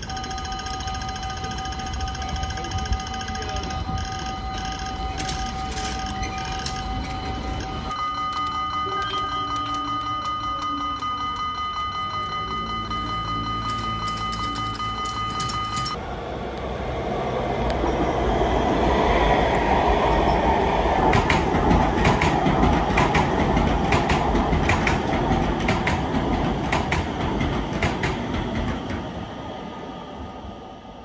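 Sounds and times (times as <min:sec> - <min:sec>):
metro train rumbling on rails: 0:00.0 - 0:31.0
wheel clicks over rail joints: 0:04.7 - 0:08.6, 0:13.6 - 0:16.0, 0:21.1 - 0:29.0.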